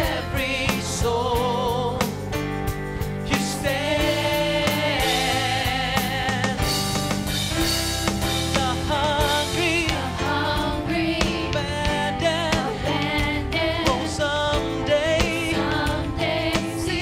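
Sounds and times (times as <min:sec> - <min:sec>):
guitar and band accompaniment: 0:00.0 - 0:17.0
women singing together: 0:03.5 - 0:06.4, 0:09.3 - 0:14.4, 0:15.3 - 0:17.0.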